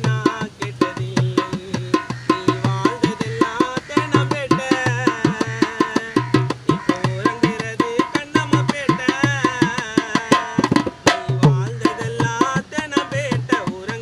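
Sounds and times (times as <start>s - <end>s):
barrel drum beat: 0.0s - 14.0s.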